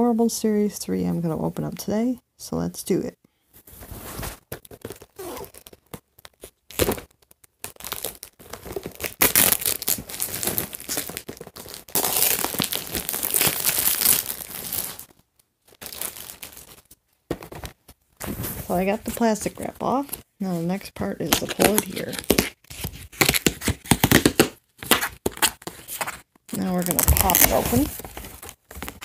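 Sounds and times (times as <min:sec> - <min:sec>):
plastic wrap tearing and crinkling: 0:04.1 - 0:17.0, 0:21.2 - 0:29.0.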